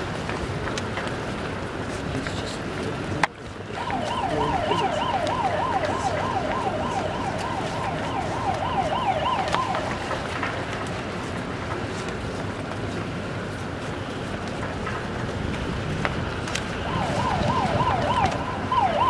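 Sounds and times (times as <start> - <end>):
distant siren yelping: 3.7 - 10.5, 16.8 - 19.0.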